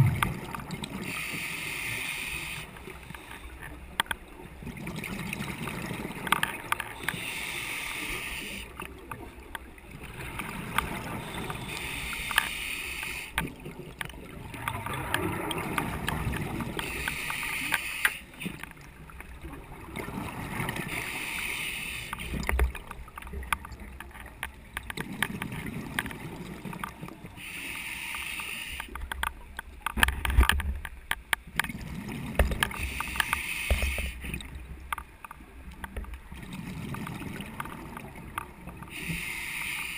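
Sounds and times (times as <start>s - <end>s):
exhaled bubbles: 0.0s - 1.2s
regulator breathing hiss: 1.0s - 3.4s, 7.0s - 8.8s, 11.6s - 13.4s, 16.8s - 18.4s, 20.9s - 22.4s, 27.4s - 29.0s, 32.8s - 34.3s, 38.9s - 39.9s.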